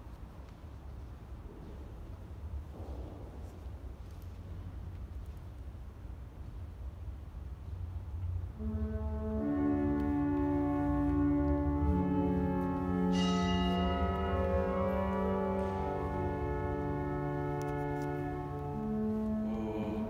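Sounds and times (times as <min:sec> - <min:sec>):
church organ chords: 0:08.5 - 0:20.0.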